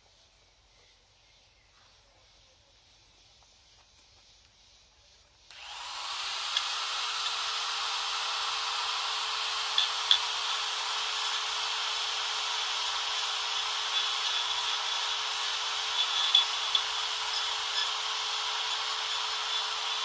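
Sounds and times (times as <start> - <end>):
power tool whining: 5.5 - 20.0.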